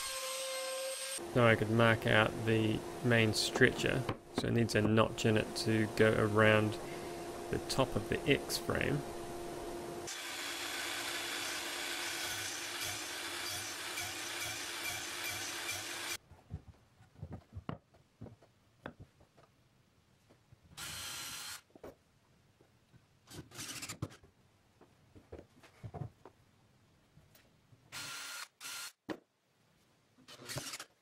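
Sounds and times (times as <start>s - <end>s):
mitre saw cutting wood: 0.0s - 1.2s, 10.1s - 16.2s.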